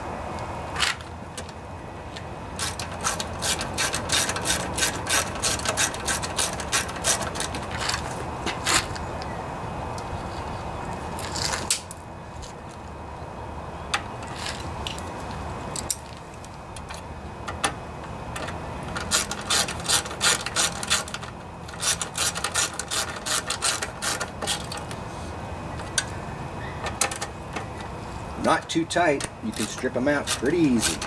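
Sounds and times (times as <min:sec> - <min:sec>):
ratchet wrench clicking: 0:02.6 - 0:08.0, 0:18.4 - 0:25.0, 0:28.6 - 0:31.0.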